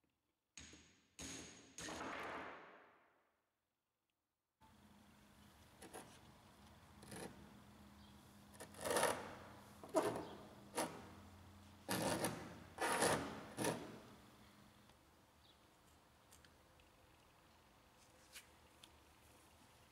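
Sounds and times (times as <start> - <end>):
stone scraping on wooden bench: 8.6 - 11.1, 11.8 - 14.1.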